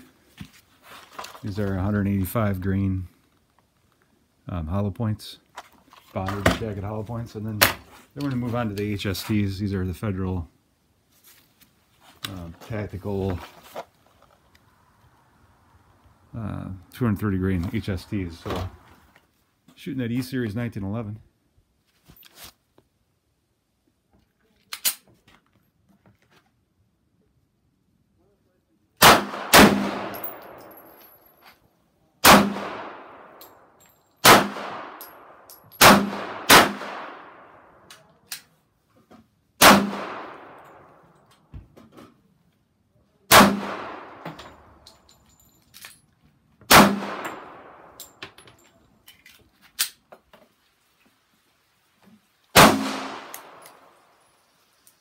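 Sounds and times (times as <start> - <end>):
pistol shots: 29.0 - 30.7, 32.2 - 33.4, 34.2 - 37.6, 39.6 - 40.9, 43.3 - 44.2, 46.7 - 48.0, 52.6 - 53.9.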